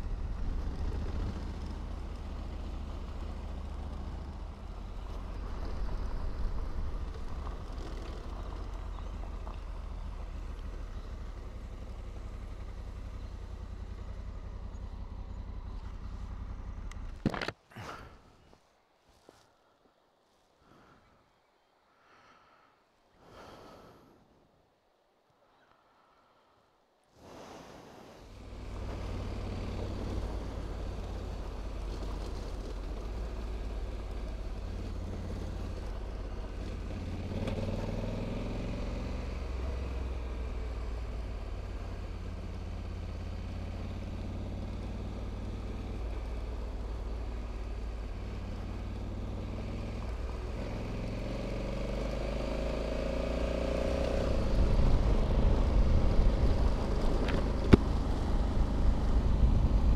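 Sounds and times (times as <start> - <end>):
motorcycle engine running: 0.0 - 17.4, 28.3 - 59.9
steady low rumble: 54.3 - 59.9.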